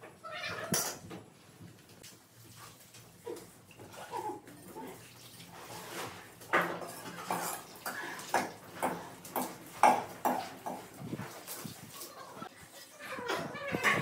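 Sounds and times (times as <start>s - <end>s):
metal pot clanking against bucket: 6.5s - 11.0s.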